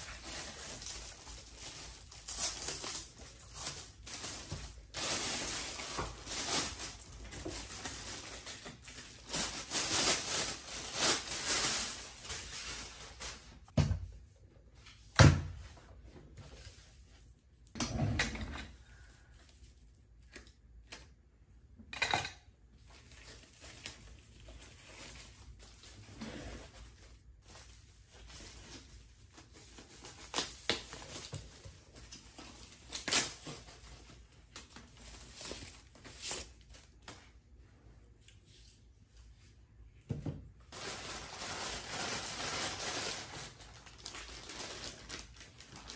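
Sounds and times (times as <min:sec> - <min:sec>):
plastic bags rustling: 0:00.0 - 0:13.7, 0:22.8 - 0:37.1, 0:40.7 - 0:45.9.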